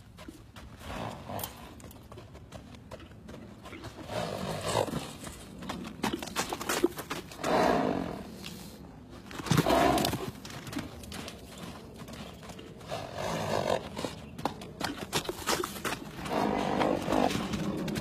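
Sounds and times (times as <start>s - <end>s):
hooves thudding in sand: 0.0s - 18.0s
horse making rough sounds: 3.7s - 5.2s, 7.3s - 8.4s, 9.5s - 10.4s, 15.5s - 18.0s.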